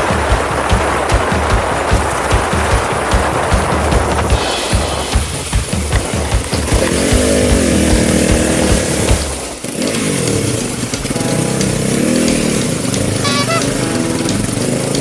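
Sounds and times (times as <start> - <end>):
motorcycle engines revving: 3.6 - 15.0.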